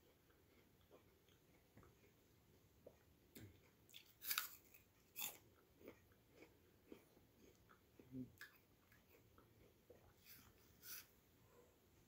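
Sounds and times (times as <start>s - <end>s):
apple crunching and chewing: 0.0s - 2.2s, 2.8s - 11.1s.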